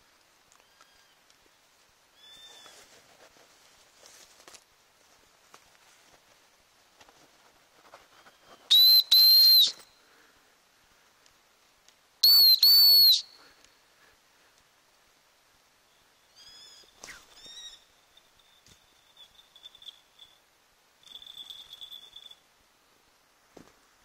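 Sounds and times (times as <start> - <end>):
loud high whistle blasts: 8.7 - 9.9, 12.2 - 13.4.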